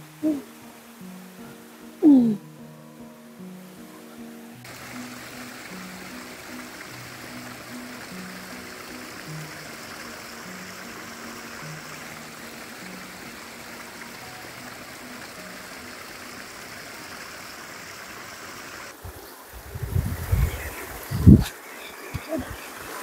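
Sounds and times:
soft background music: 0.0s - 17.4s
stream flowing: 0.0s - 23.0s.

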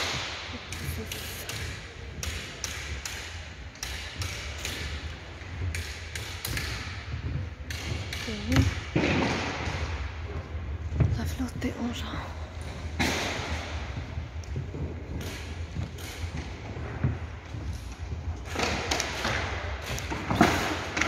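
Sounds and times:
echoing knocks and bangs: 0.0s - 21.0s.

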